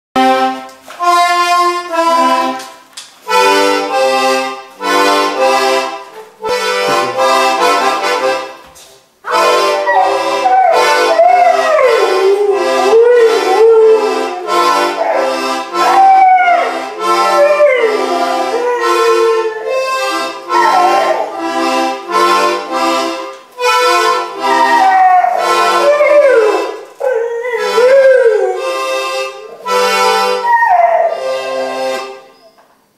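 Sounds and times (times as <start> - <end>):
accordion playing chords: 0.2 - 32.4
dog howling: 9.8 - 19.9, 20.5 - 21.7, 24.4 - 31.3.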